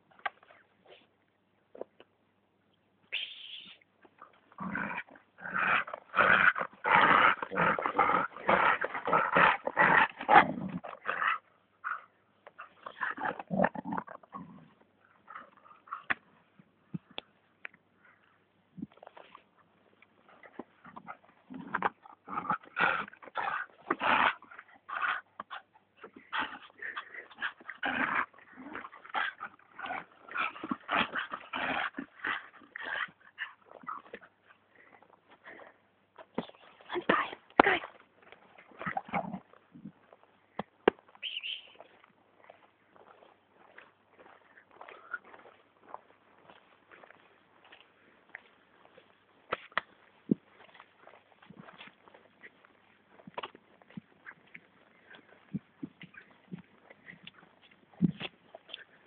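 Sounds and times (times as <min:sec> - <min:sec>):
dog growling in play: 0:04.6 - 0:11.4, 0:12.8 - 0:15.9, 0:20.8 - 0:25.2, 0:26.3 - 0:34.2, 0:38.8 - 0:39.5.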